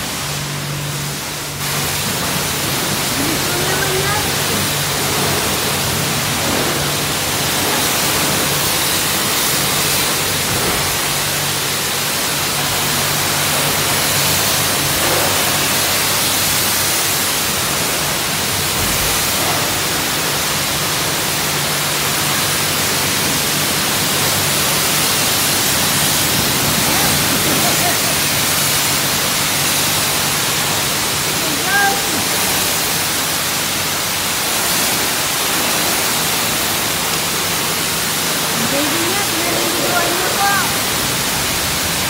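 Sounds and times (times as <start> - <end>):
high-pressure water spraying: 0.0 - 42.0.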